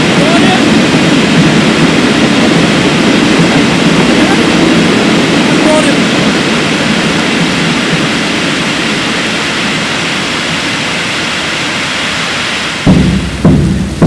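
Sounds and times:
oil well blowout roaring: 0.0 - 14.0
loud thump: 12.8 - 14.0.

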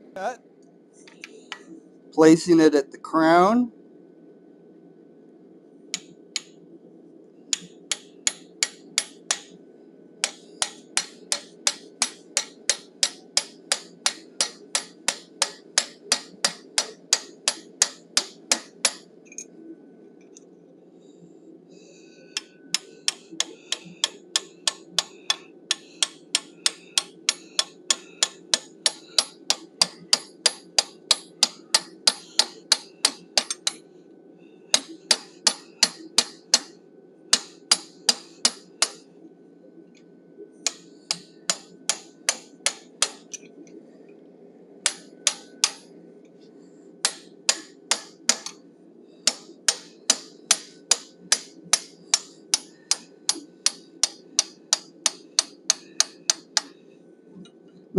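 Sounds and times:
steady low hum: 0.0 - 57.9
hammer striking chisel on steel: 7.5 - 9.5, 10.2 - 19.1, 22.4 - 33.8, 34.7 - 39.0, 40.7 - 43.4, 44.8 - 45.8, 47.0 - 48.6, 49.3 - 56.7.

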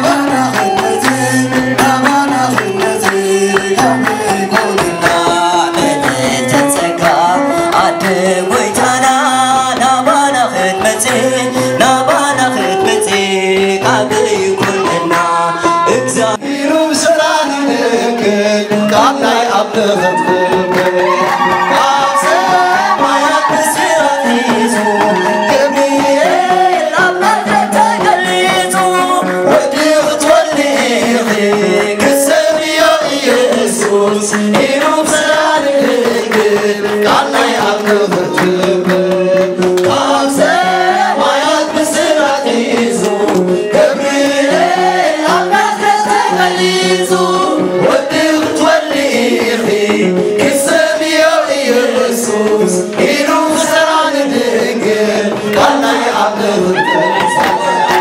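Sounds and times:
hands clapping: 0.0 - 11.4, 12.1 - 15.4, 19.8 - 44.4, 55.4 - 58.0
drums beating: 0.0 - 15.5, 16.1 - 58.0
group singing a hymn: 0.0 - 15.6, 16.4 - 58.0.

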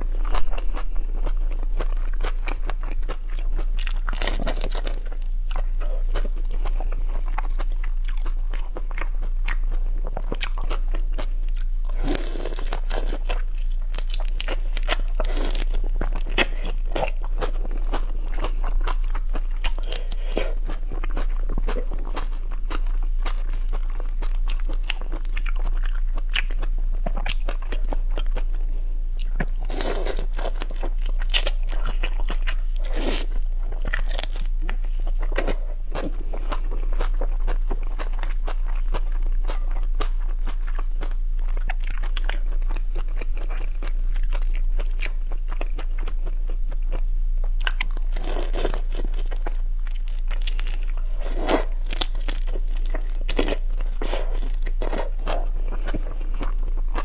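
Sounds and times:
low electrical hum: 0.0 - 57.0
chewing and biting: 29.2 - 57.0.

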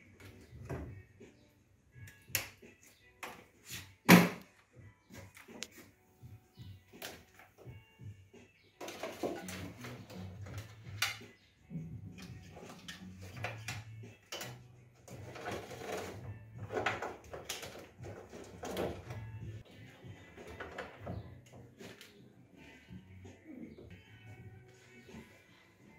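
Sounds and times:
background music with bass line: 0.0 - 25.9.

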